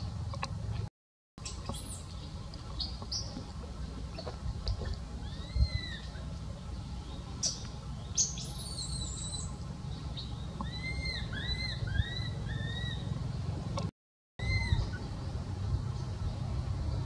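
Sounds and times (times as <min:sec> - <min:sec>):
steady low rumble: 0:00.0 - 0:17.0
baby monkey squeaky calls: 0:05.2 - 0:06.0, 0:08.2 - 0:09.5, 0:10.6 - 0:13.1, 0:14.4 - 0:15.0.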